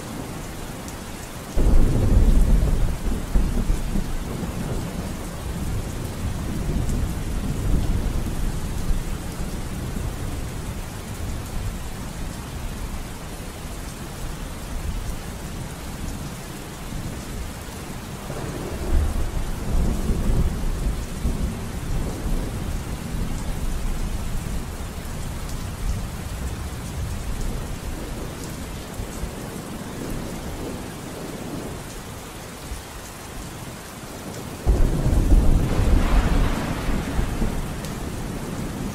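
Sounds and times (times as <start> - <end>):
steady rain: 0.0 - 38.9
low rolling thunder: 1.6 - 11.8, 18.2 - 28.4, 34.6 - 38.9.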